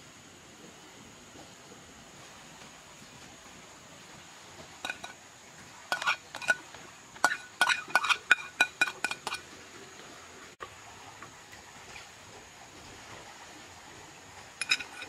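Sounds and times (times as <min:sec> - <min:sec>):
plate clinking against clay pot: 0:04.8 - 0:05.2, 0:05.9 - 0:09.4, 0:14.6 - 0:15.0.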